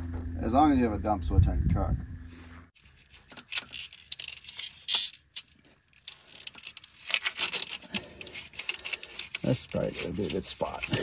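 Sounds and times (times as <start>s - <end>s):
hands rustling plastic hose: 2.8s - 11.0s
plastic hose scraping: 2.8s - 11.0s.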